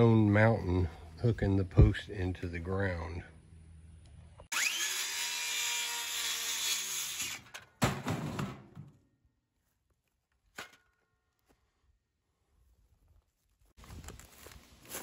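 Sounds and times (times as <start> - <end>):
electric power saw whining: 4.5 - 7.6.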